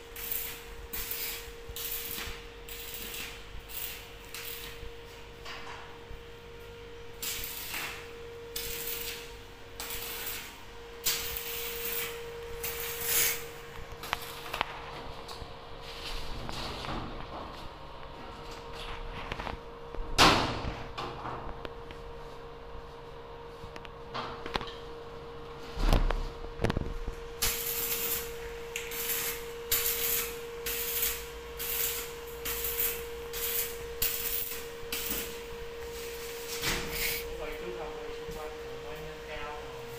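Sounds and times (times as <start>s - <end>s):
welding arc crackling and hissing: 0.0s - 5.3s, 7.0s - 16.9s, 26.1s - 39.9s
steady hum: 0.0s - 39.9s.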